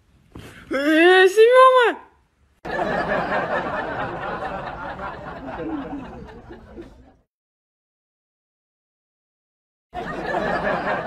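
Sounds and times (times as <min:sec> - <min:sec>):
crowd laughing: 0:02.6 - 0:07.3, 0:10.0 - 0:11.0.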